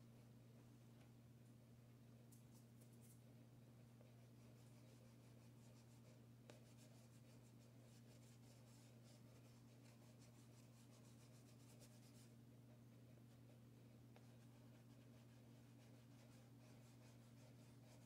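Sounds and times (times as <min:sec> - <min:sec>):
steady low hum: 0:00.0 - 0:18.0
chalk pastel scratching paper: 0:04.0 - 0:18.0.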